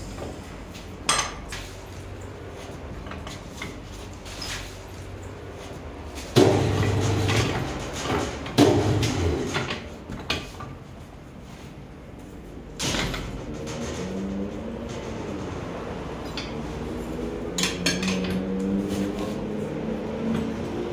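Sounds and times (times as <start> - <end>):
tyre changer mechanical clunks: 6.0 - 10.9, 12.5 - 20.9.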